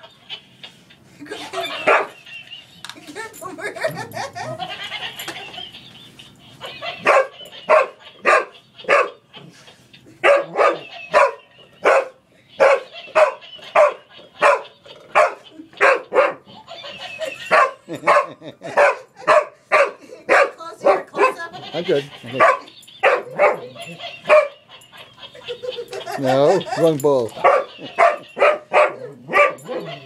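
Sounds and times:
dog barking: 1.8s - 2.2s, 6.7s - 9.2s, 10.2s - 16.5s, 17.5s - 21.5s, 22.4s - 24.6s, 27.3s - 30.0s.

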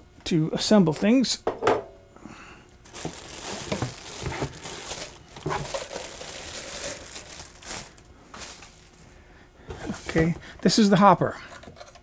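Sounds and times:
plastic bag crinkling: 2.8s - 9.1s.

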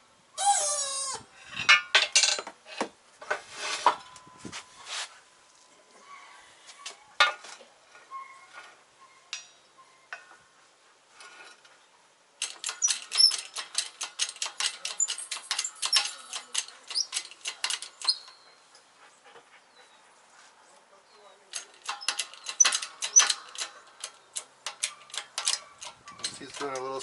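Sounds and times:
rapid metallic clicks and rattles: 12.4s - 18.3s, 21.5s - 27.0s.

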